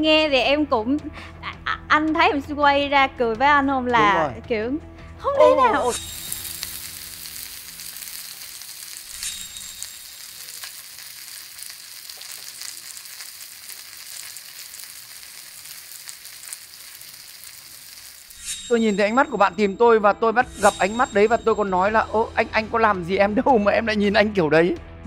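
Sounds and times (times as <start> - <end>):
meat sizzling in oil: 5.9 - 19.4
oil crackling pops: 6.0 - 18.4.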